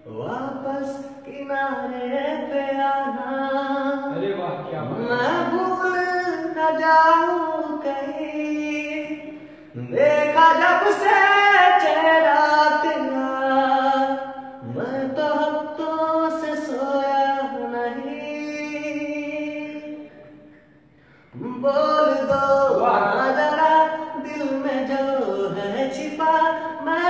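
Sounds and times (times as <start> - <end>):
man singing unaccompanied: 0.0 - 20.5, 21.3 - 27.0.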